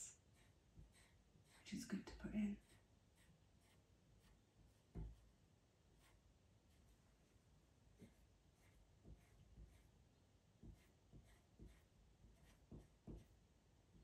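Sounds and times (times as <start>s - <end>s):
pencil scratching on paper: 0.3s - 1.7s, 2.5s - 7.1s, 8.0s - 10.0s, 10.6s - 13.4s
soft pencil knocks on paper: 4.9s - 5.3s, 9.0s - 9.8s, 10.6s - 13.4s.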